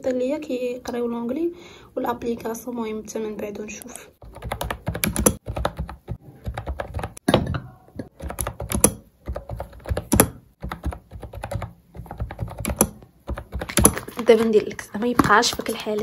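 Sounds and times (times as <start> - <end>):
fast typing on keyboard: 4.2 - 7.2, 8.1 - 16.0.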